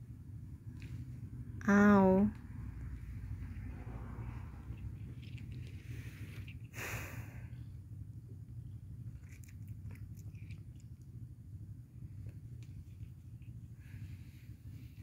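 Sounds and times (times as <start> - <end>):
steady low hum: 0.0 - 15.0
noisy rustle: 3.0 - 7.2
kitten chewing: 4.6 - 6.8, 8.4 - 14.1.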